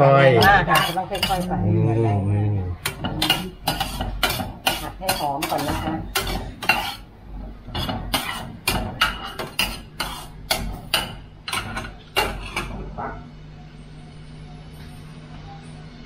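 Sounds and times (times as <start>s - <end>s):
spatula scraping a pot: 0.4s - 1.7s, 2.8s - 12.7s.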